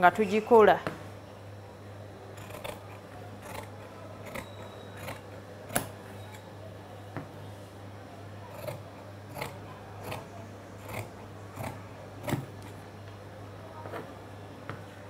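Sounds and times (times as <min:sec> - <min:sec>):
shears snipping cloth: 0:08.6 - 0:12.8.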